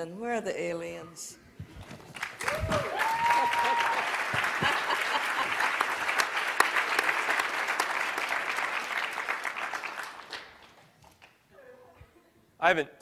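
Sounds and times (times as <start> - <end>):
audience applauding: 1.9 - 11.4.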